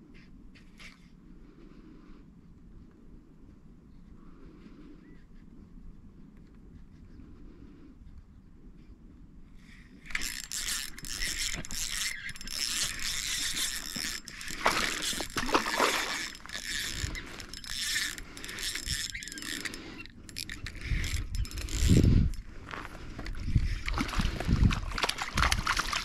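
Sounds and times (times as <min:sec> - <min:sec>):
fishing reel ticking: 0:09.7 - 0:22.5
fish splashing: 0:10.1 - 0:19.8.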